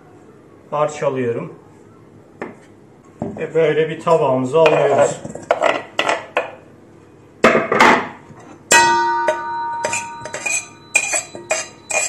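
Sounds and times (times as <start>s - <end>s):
steel bowl struck and ringing: 8.7s - 12.0s
light dishware clinks: 8.8s - 12.0s.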